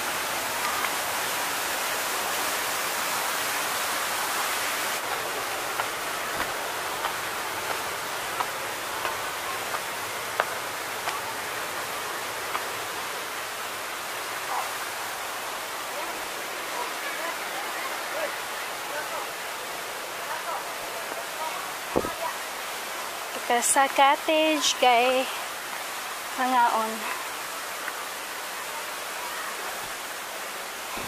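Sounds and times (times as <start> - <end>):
waterfall rushing: 0.0 - 31.0
footsteps on stone steps: 5.0 - 11.2, 21.9 - 22.2.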